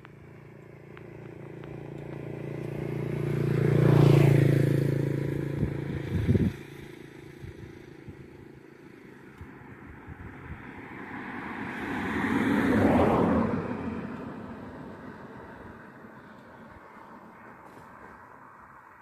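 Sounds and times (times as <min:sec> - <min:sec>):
vehicle passing: 0:00.0 - 0:19.0.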